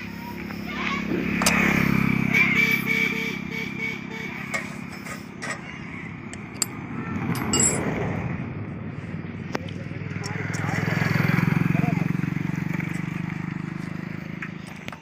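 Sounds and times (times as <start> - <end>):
motor engine running: 0.0 - 15.0.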